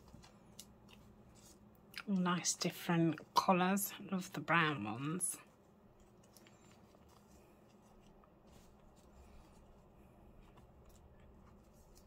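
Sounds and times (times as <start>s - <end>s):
paper ticks and rustles: 0.0s - 2.2s, 5.4s - 12.0s.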